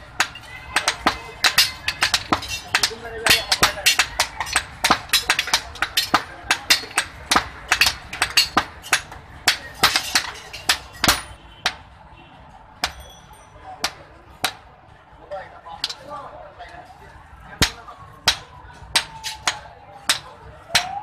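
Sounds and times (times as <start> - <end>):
hammer beating hot iron on anvil: 0.1 - 11.8, 12.8 - 13.2, 17.6 - 21.0.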